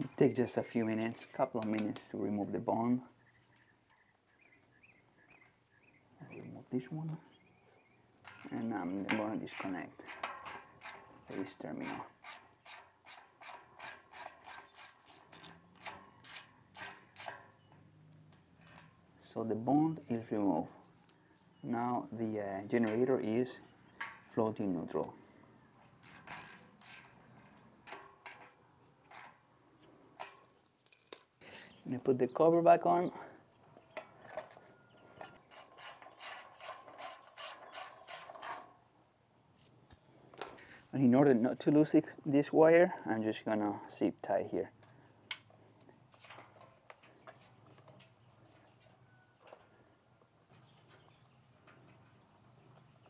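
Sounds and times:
nut driver scraping strokes: 0:09.3 - 0:17.5, 0:25.9 - 0:27.2, 0:35.4 - 0:38.7.

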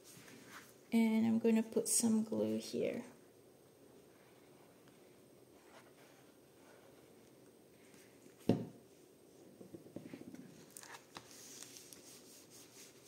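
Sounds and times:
hands rubbing paper onto card: 0:10.8 - 0:13.0.

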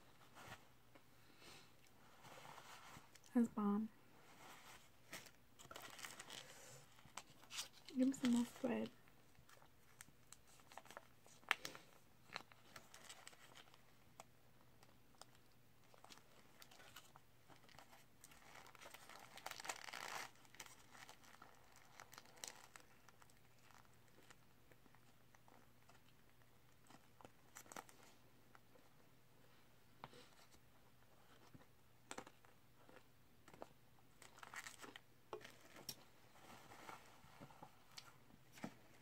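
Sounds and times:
paper wrapper crinkling: 0:04.4 - 0:28.2, 0:32.1 - 0:37.2.

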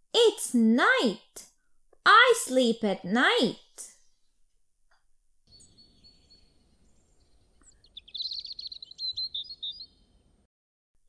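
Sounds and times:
thin high chirping: 0:05.5 - 0:10.1
bird chirps and twitters: 0:05.5 - 0:10.2.

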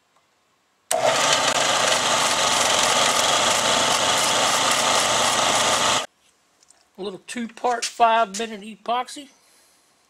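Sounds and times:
belt sander running: 0:00.9 - 0:06.1.

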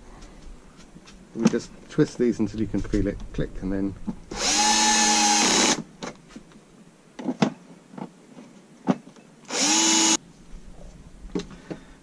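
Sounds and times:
cordless drill driving screws: 0:04.3 - 0:05.8, 0:09.5 - 0:10.2.

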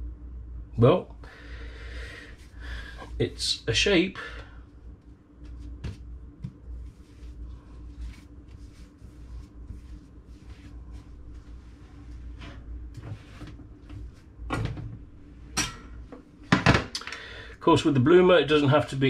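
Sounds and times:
hands kneading bread dough: 0:04.8 - 0:14.4.

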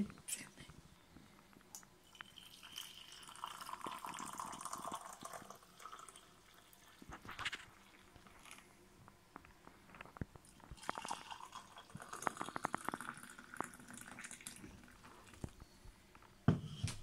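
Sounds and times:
coffee pouring into mug: 0:02.0 - 0:08.8, 0:10.0 - 0:15.6.

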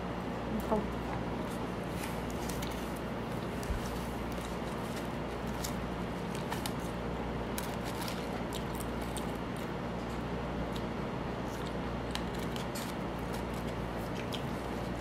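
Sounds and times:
steady low hum: 0:00.0 - 0:15.0
person chewing food: 0:07.6 - 0:09.8, 0:10.6 - 0:15.0.

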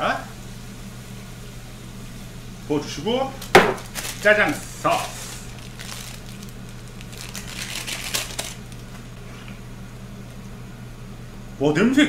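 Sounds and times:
low steady hum: 0:00.0 - 0:12.0
plastic packet crinkling: 0:03.4 - 0:09.2.

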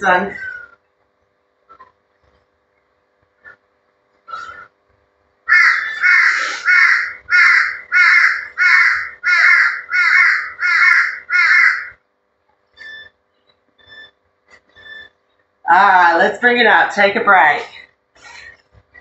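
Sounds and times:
bird calling loudly: 0:05.5 - 0:12.0.

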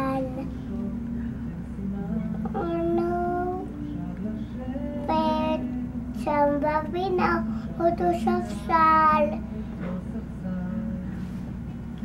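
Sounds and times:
child singing: 0:00.0 - 0:00.6, 0:02.4 - 0:09.5
steady low hum: 0:00.0 - 0:12.0.

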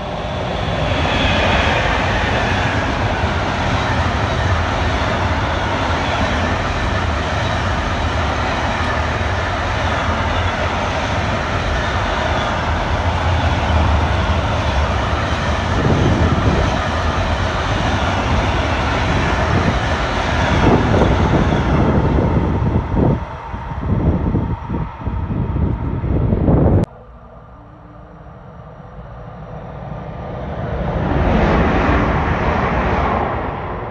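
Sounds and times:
steel wheels rolling on rails: 0:00.0 - 0:26.9
freight train passing at speed: 0:00.0 - 0:33.9.

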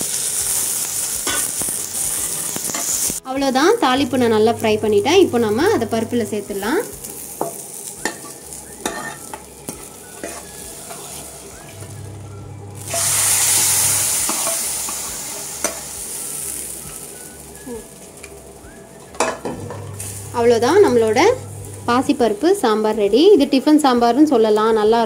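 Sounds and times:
hot oil sizzling in liquid: 0:00.0 - 0:23.3
steel ladle scraping and tapping: 0:07.4 - 0:11.2, 0:14.3 - 0:15.0.

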